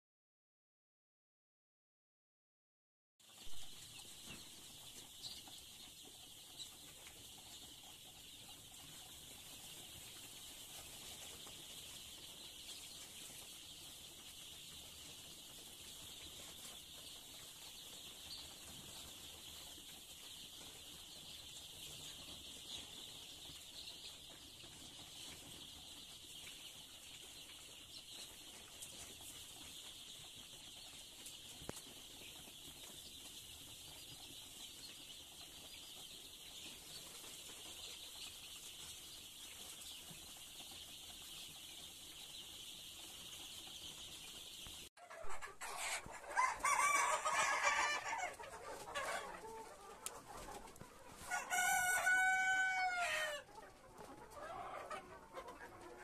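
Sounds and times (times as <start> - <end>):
chickens calling: 3.3 - 56.0
chicks peeping: 3.3 - 56.0
rooster crowing: 46.3 - 48.3, 51.3 - 53.4.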